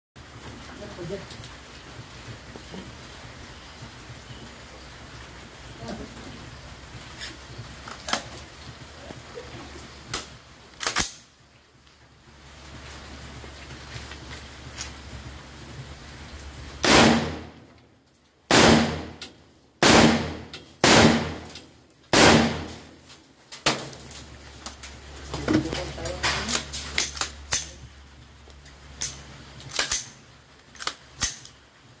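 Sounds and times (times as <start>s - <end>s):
rifle metallic clicks and clacks: 10.1s - 11.3s, 26.2s - 27.8s, 29.0s - 31.6s
rifle shots cracking: 10.2s - 11.3s, 16.8s - 17.6s, 18.5s - 19.2s, 19.8s - 22.8s.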